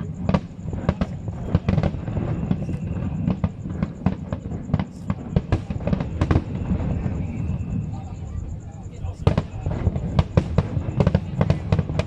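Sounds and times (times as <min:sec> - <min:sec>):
firework shells bursting: 0:00.0 - 0:07.8.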